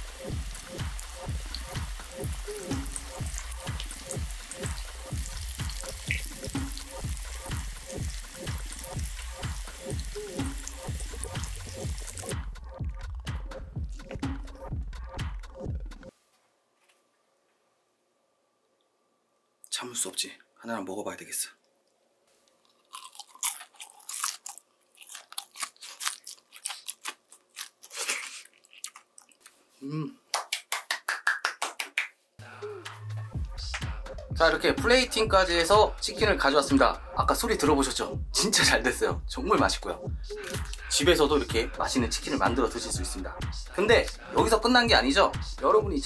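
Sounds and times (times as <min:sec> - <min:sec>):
chicken deep-frying in oil: 0:00.0 - 0:12.3
background music with beat: 0:00.0 - 0:16.1, 0:32.4 - 0:46.0
crunchy chewing of fried chicken: 0:22.5 - 0:29.7.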